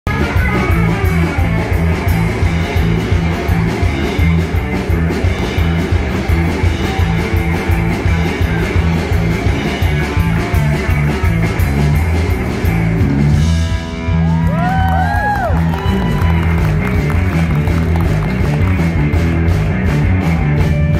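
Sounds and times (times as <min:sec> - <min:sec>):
guitar lead line sliding: 0:00.0 - 0:14.4
country-rock band playing: 0:00.0 - 0:20.9.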